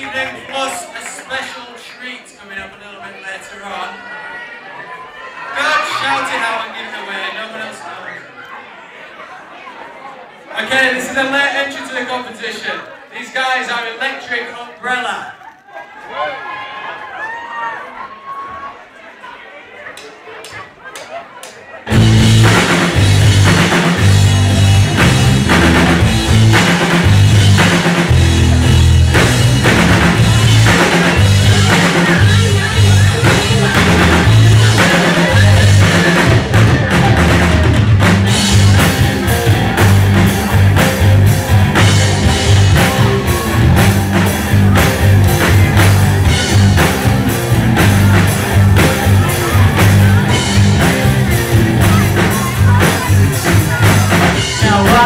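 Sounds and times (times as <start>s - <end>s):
bass guitar: 21.9s - 55.0s
drum kit steady beat: 21.9s - 55.0s
electric guitar: 21.9s - 55.0s.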